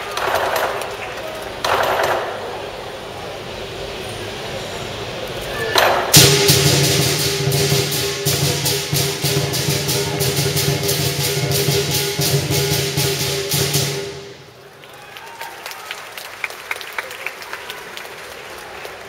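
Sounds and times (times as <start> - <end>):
cymbals clashing: 0.0 - 14.6
large drum: 6.0 - 14.5
gong ringing: 6.1 - 14.4.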